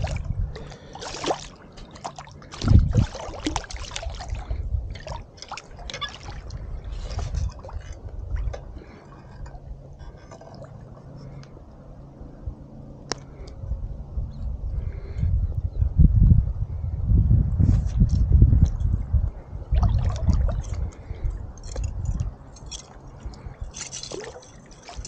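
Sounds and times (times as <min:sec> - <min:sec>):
fish splashing at water surface: 0:00.0 - 0:09.3
low rumble: 0:02.5 - 0:03.2.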